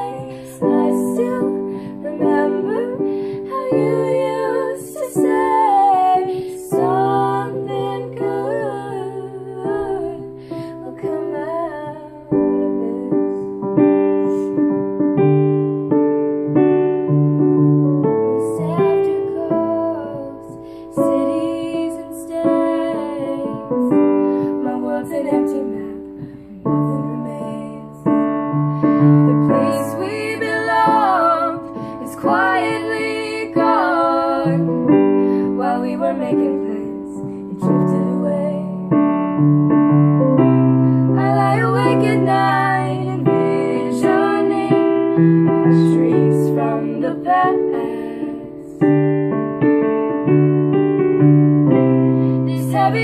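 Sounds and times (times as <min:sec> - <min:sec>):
young woman singing: 0:00.0 - 0:14.5, 0:18.2 - 0:39.0, 0:41.1 - 0:48.9, 0:52.4 - 0:53.0
electric keyboard chords: 0:11.3 - 0:21.8, 0:22.5 - 0:46.3, 0:47.3 - 0:53.0.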